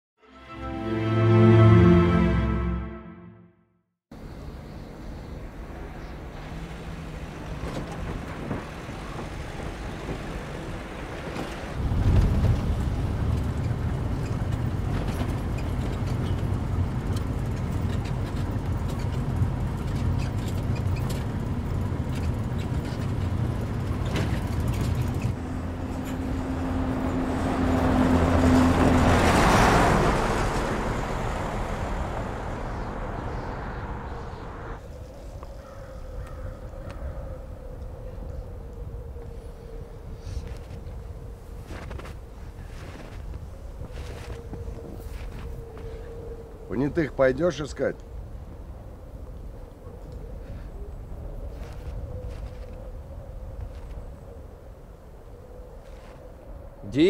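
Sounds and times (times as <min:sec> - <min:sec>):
vehicle engine droning: 0:04.1 - 0:34.8
rush of road noise: 0:04.2 - 0:55.3.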